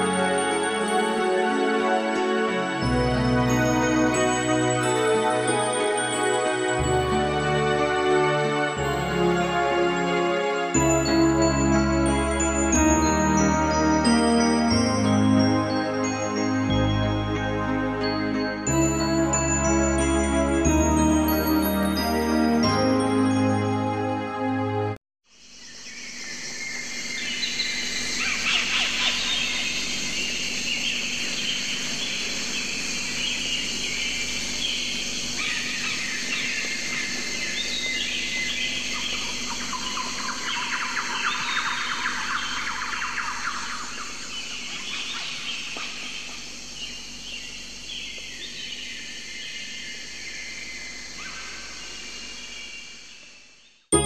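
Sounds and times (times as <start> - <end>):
birds chirping and singing: 26.0 - 52.9.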